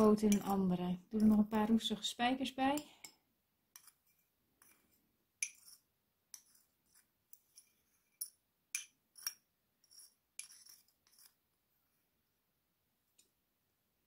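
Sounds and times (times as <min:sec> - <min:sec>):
metal spoon clinking on glass dish: 0:00.0 - 0:00.6.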